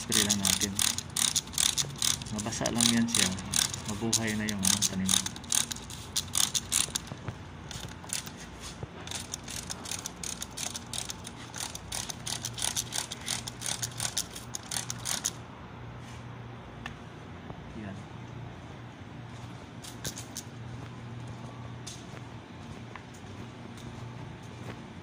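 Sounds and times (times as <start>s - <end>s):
spray bottle clicking and hissing: 0.1s - 8.4s.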